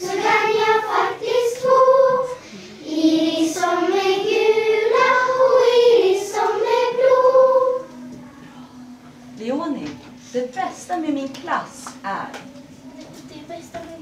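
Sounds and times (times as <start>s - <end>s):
children singing in unison: 0.0s - 8.0s.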